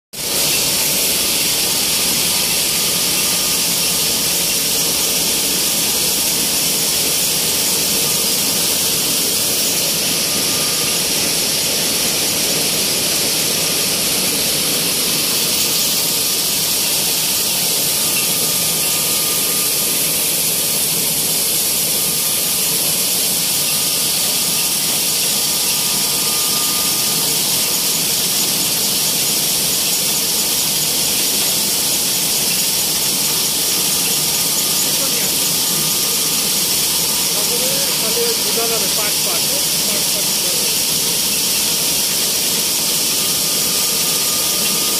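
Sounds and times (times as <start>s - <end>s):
mill machinery hiss and whine: 0.2s - 44.9s.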